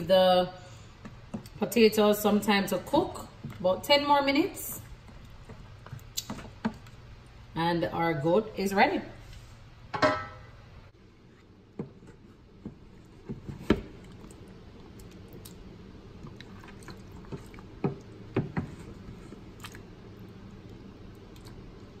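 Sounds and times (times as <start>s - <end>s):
spoon stirring thick stew: 16.2s - 19.9s.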